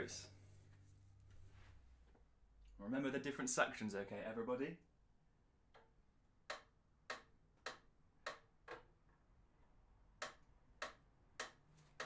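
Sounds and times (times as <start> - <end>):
metronome ticking: 5.8 - 8.8, 10.2 - 12.0.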